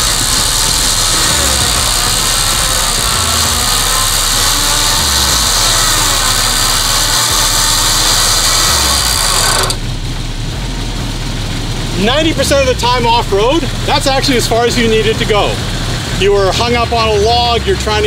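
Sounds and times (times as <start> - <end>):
electric winch pulling line: 0.0 - 9.9
car engine idling: 0.0 - 18.0.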